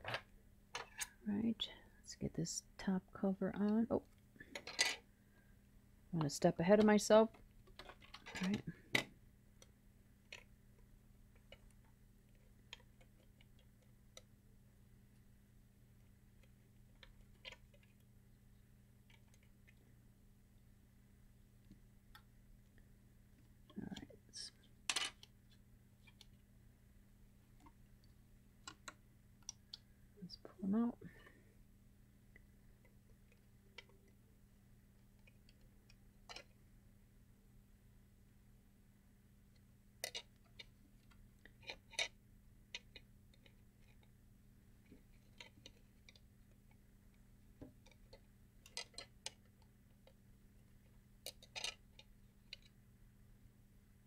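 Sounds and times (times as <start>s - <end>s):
plastic parts clicking: 7.3s - 9.1s, 35.2s - 36.6s, 40.0s - 44.1s, 47.6s - 50.2s, 51.2s - 52.8s
plastic parts handled: 51.2s - 52.8s.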